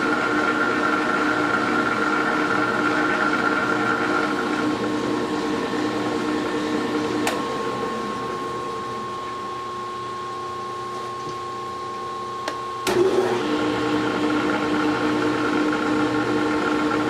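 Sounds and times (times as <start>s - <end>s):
metal lathe hum and whine: 0.0s - 17.0s.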